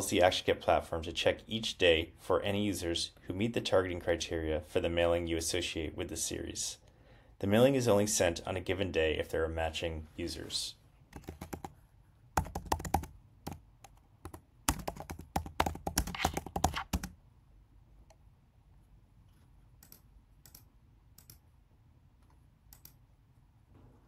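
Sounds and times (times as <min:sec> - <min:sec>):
typing on computer keyboard: 0:11.2 - 0:11.8, 0:12.4 - 0:17.2.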